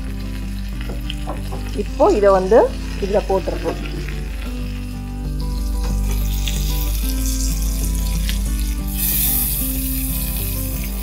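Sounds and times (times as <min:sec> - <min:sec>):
background music with low notes: 0:00.0 - 0:11.0
hot oil sizzling: 0:00.0 - 0:11.0.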